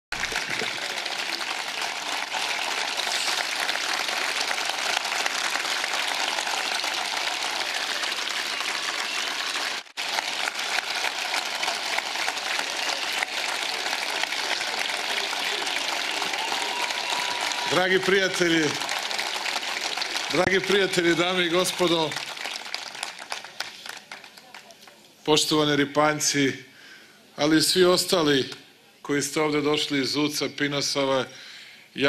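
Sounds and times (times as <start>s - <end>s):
large crowd applauding: 0.1s - 25.0s.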